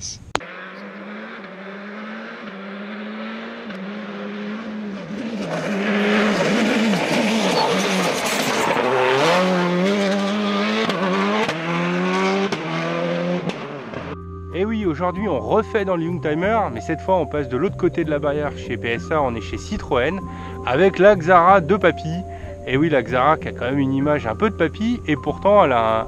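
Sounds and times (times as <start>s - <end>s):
rally car engine revving: 0.4s - 14.2s, 15.5s - 26.0s
tyres on gravel: 3.8s - 10.3s.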